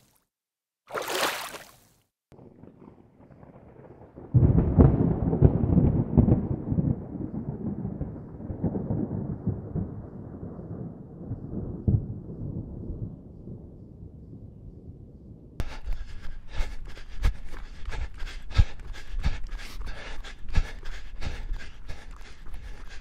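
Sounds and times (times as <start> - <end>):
water splashing against kayak: 0.9 - 1.9
rolling thunder: 2.4 - 15.6.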